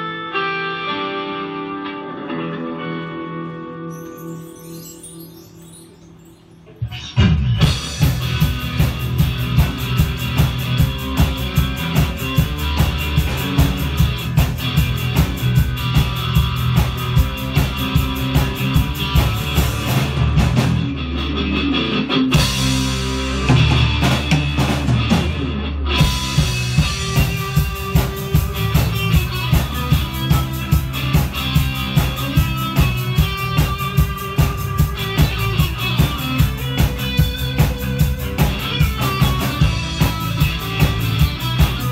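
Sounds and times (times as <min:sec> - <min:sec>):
live rock band playing: 0:00.0 - 0:41.9
drum kit beat: 0:07.6 - 0:21.0, 0:22.3 - 0:41.9.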